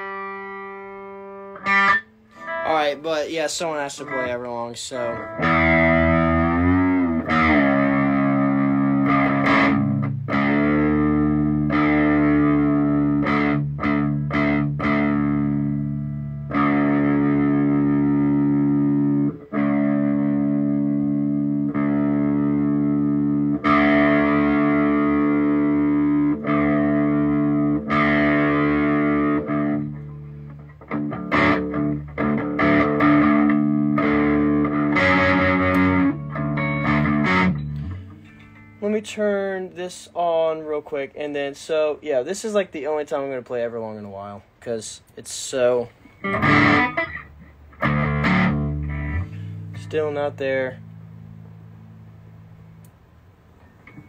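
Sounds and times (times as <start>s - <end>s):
electric guitar strumming chords: 0.0s - 39.9s, 46.0s - 54.0s.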